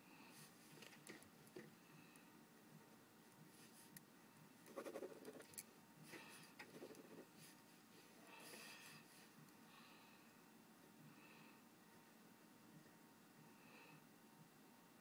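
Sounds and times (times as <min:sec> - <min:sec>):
pen scribbling on paper: 0:04.7 - 0:05.5.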